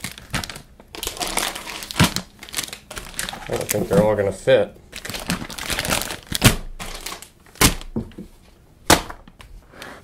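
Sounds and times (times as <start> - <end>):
plastic pouches crinkling: 0.0 - 8.0.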